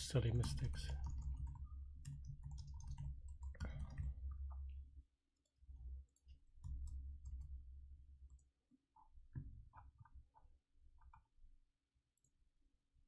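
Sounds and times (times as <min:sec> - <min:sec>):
keyboard and mouse clicks: 0:00.3 - 0:04.7.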